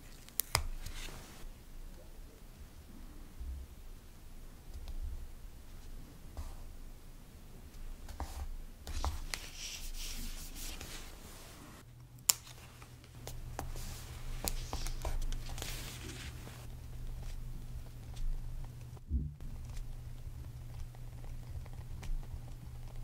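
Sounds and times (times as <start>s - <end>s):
sticker paper rustling: 0.0s - 1.4s, 8.1s - 11.6s, 12.3s - 23.0s.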